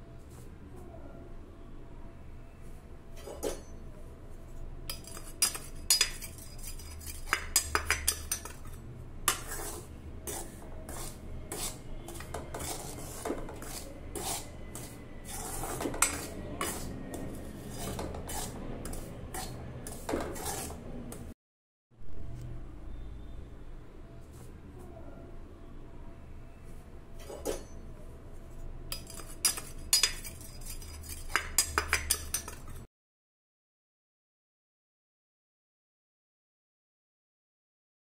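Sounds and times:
metal spoon scraping a pan: 0:03.1 - 0:03.8, 0:04.6 - 0:21.3, 0:27.2 - 0:32.9.

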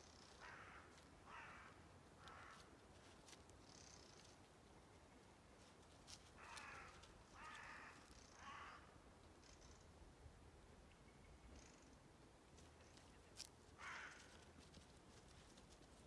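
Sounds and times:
crows cawing: 0:00.4 - 0:02.7, 0:06.4 - 0:09.0, 0:13.7 - 0:14.5.

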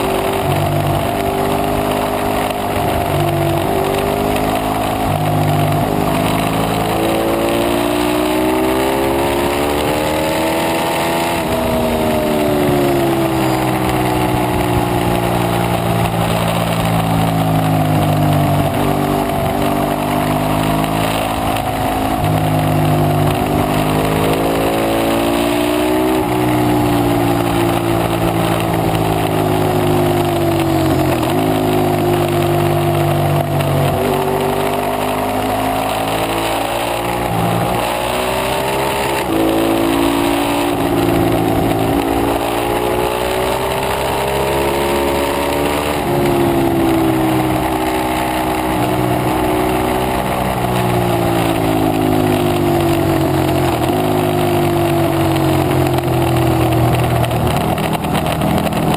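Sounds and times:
motorcycle engine revving: 0:00.0 - 0:58.9.

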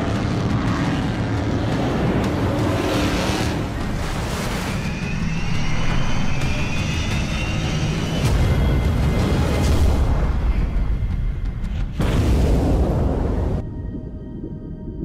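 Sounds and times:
boat engines running at speed: 0:00.0 - 0:08.4
background music: 0:00.0 - 0:15.0.

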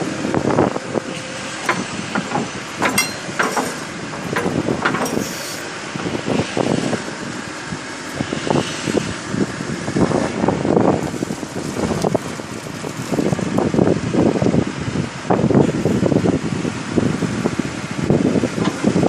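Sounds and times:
diesel engine under load: 0:00.0 - 0:19.0
clanks and knocks: 0:01.6 - 0:06.2.

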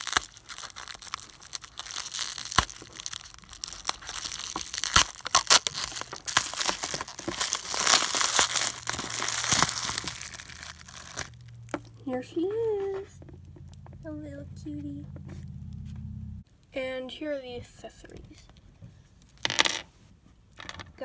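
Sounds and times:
bubble wrap crinkling: 0:00.0 - 0:13.9.

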